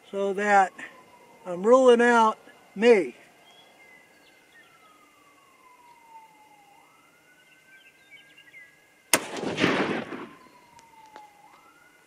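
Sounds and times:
distant siren wailing: 0.0s - 12.0s
rifle shot: 9.1s - 10.6s.

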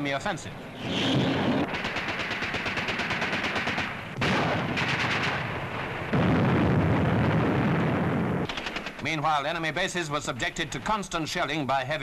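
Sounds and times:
automatic gunfire bursts: 1.7s - 5.4s, 8.4s - 9.2s.

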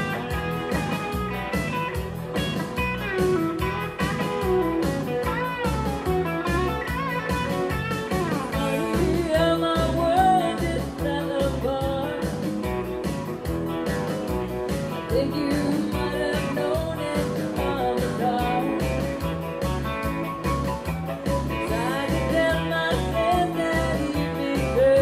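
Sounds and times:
steady beat: 0.0s - 24.8s
lead electric guitar with bends: 0.0s - 25.0s
rhythm guitar: 0.0s - 25.0s.

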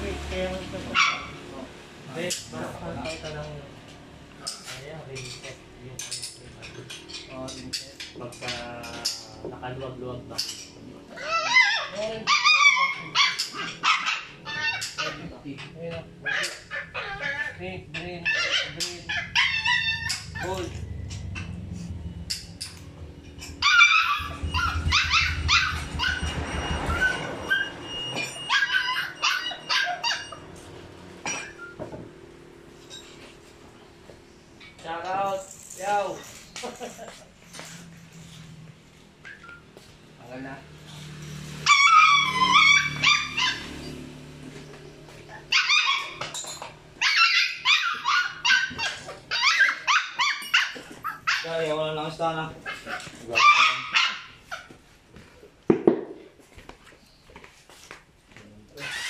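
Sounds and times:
dog barking and yelping: 0.9s - 1.5s, 11.1s - 15.4s, 16.2s - 31.7s, 41.5s - 44.0s, 45.2s - 54.8s
low steady rumble: 19.1s - 27.6s.

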